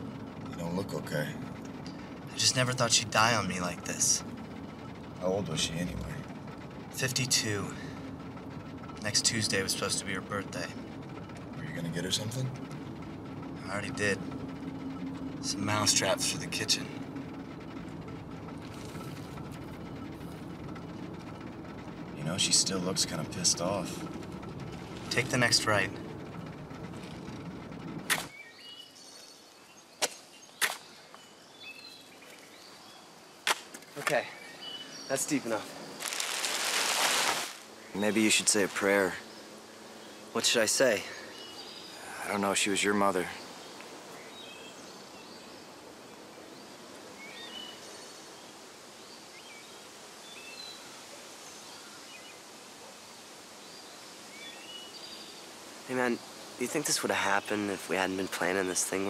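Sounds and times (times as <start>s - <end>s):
car road noise rumble: 0.0s - 28.4s, 34.6s - 48.4s, 54.7s - 59.0s
small birds chirping: 0.0s - 59.0s
shovels digging into earth: 28.1s - 28.3s, 30.0s - 30.8s, 36.0s - 37.6s
steady background hiss: 30.9s - 59.0s.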